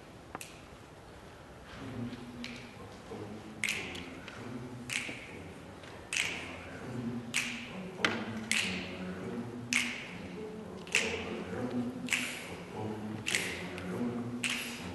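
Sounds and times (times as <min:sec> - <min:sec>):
vocal ensemble singing: 0:01.7 - 0:14.9
finger snaps: 0:03.6 - 0:05.4, 0:06.1 - 0:06.6, 0:07.3 - 0:08.9, 0:09.7 - 0:10.2, 0:10.8 - 0:12.6, 0:13.2 - 0:14.9.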